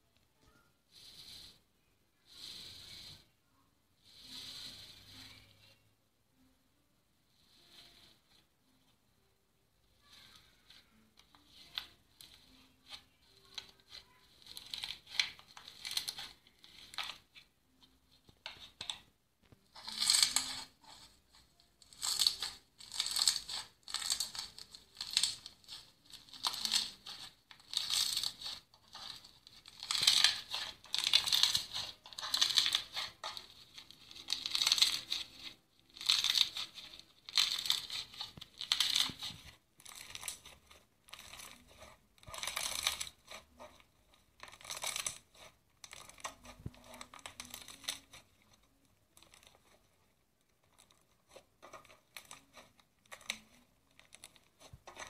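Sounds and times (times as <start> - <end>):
slime crackling and crunching: 19.7 - 21.2, 21.8 - 49.9.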